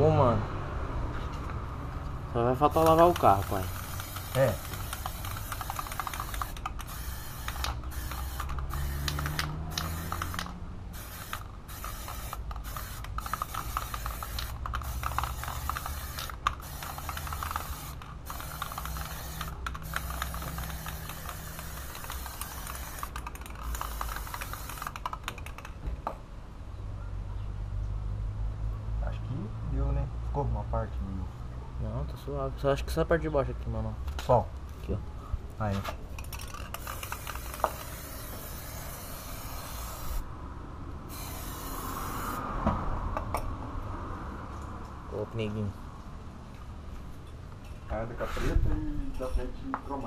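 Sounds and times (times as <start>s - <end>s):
aerosol spray can hissing: 2.7s - 25.0s, 36.8s - 40.2s, 41.1s - 42.4s.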